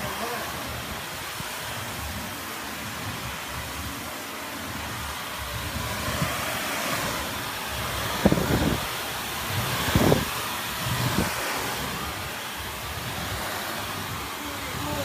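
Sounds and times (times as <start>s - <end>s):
vacuum cleaner running: 0.0s - 15.0s.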